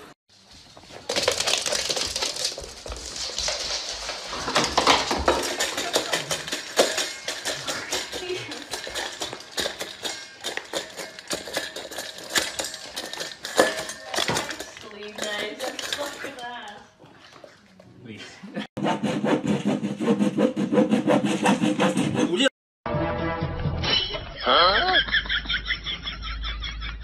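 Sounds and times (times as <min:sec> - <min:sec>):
metal bowl clattering on wood: 0:01.0 - 0:17.0
dog eating: 0:01.2 - 0:18.0.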